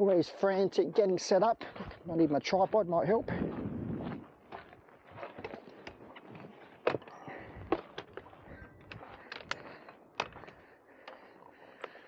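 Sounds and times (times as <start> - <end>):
camera gear clicks and knocks: 5.3 - 11.2.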